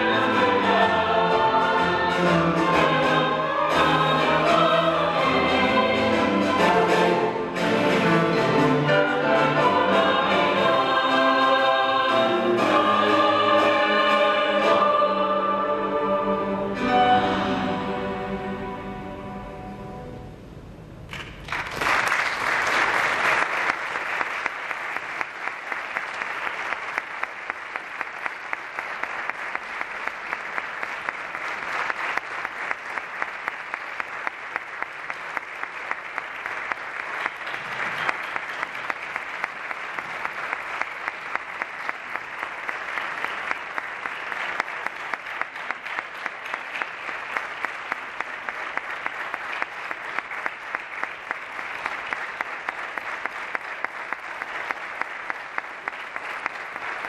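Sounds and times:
orchestra chord: 0.1 - 20.8
audience applauding: 21.1 - 57.0.

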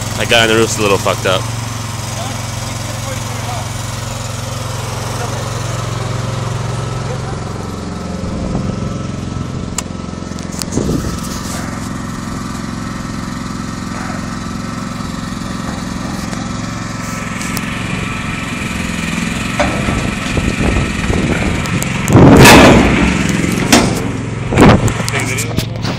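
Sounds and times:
small engine running: 0.0 - 25.9
microphone handling noise: 10.4 - 11.9, 20.0 - 25.9.

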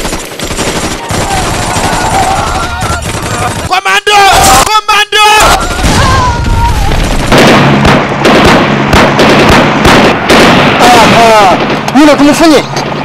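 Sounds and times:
rapid gunfire and booms: 0.0 - 4.6, 5.6 - 13.0
man shouting: 3.7 - 6.8.

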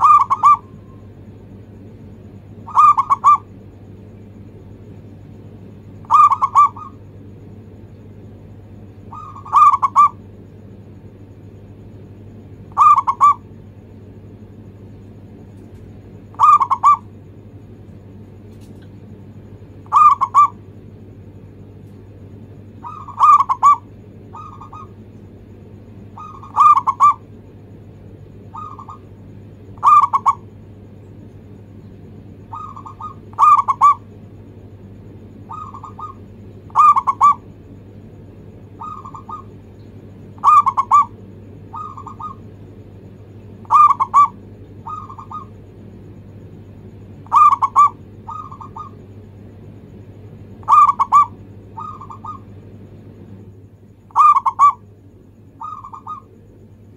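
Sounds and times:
dove cooing: 0.0 - 1.1, 2.3 - 3.6, 5.9 - 7.1, 8.9 - 10.3, 12.6 - 13.6, 16.2 - 17.2, 19.8 - 20.7, 22.6 - 25.0, 26.0 - 27.4, 28.4 - 30.5, 32.3 - 34.2, 35.3 - 37.9, 38.6 - 42.6, 43.6 - 45.6, 47.1 - 49.2, 50.4 - 52.6, 54.1 - 54.9, 55.5 - 56.4
faint low steady hum: 0.0 - 56.9.

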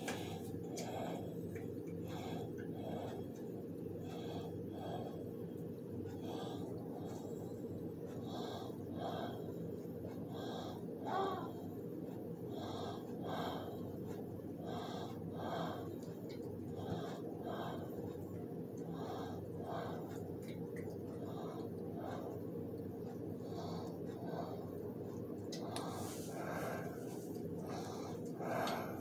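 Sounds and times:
low hum: 0.0 - 29.0
person breathing close: 0.0 - 29.0.

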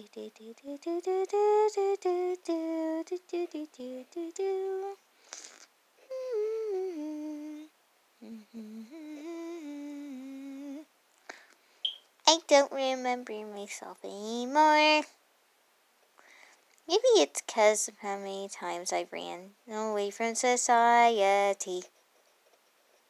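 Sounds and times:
woman humming: 6.0 - 10.9.

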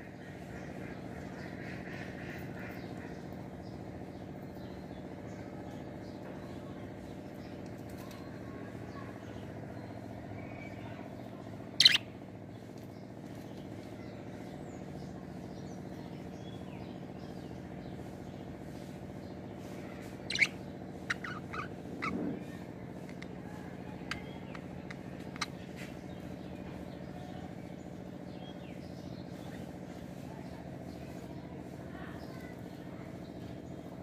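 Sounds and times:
steady low hum: 0.0 - 34.0
budgerigars chirping: 11.8 - 12.0, 20.3 - 22.2.

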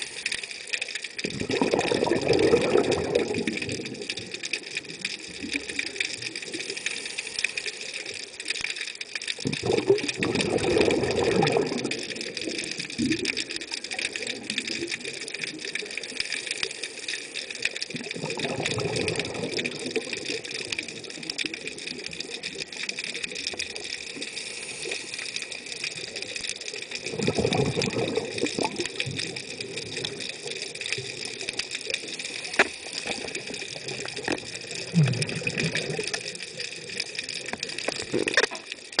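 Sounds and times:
exhaled bubbles roaring: 1.2 - 6.6, 9.4 - 16.0, 17.9 - 24.0, 25.8 - 32.1, 33.0 - 39.0.

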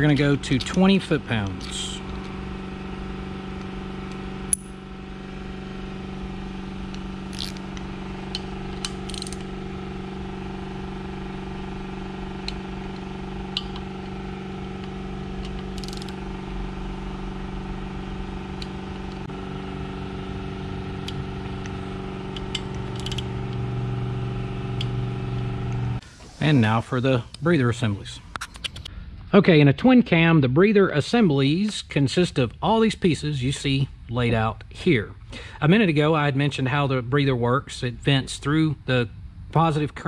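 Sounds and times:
steady background hum: 0.0 - 40.0
torque wrench clicking: 0.5 - 2.3, 3.6 - 4.7, 6.9 - 9.5, 14.8 - 16.2, 22.4 - 23.6.

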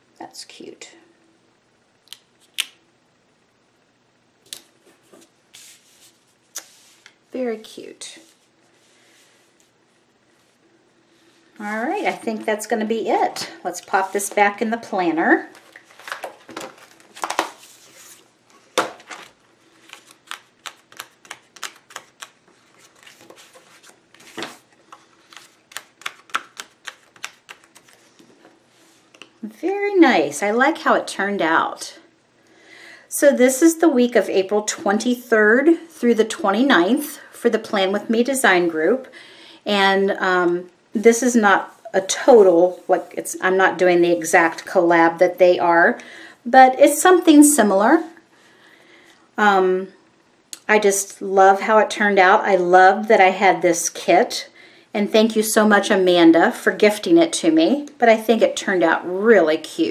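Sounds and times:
paper rustle: 19.0 - 28.3.

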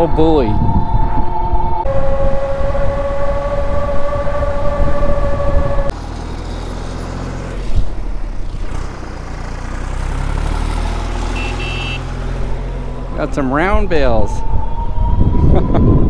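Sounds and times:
wind buffeting microphone: 0.0 - 6.0, 12.1 - 16.0.

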